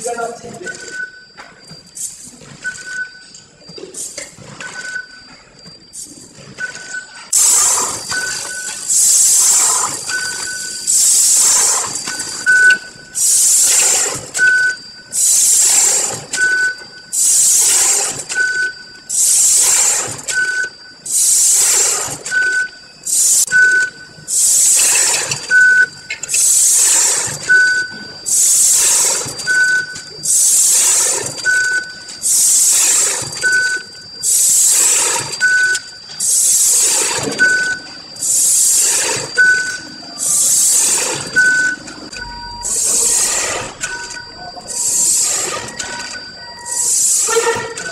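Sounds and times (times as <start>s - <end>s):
faint high machine whine: 0.0s - 47.9s
short beep: 0.0s - 47.9s
compressed air hiss: 8.8s - 10.0s.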